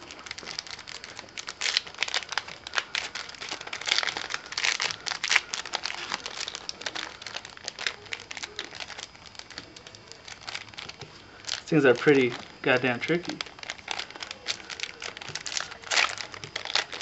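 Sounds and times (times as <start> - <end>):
plastic wrapper crinkling and tearing: 0.0 - 17.0.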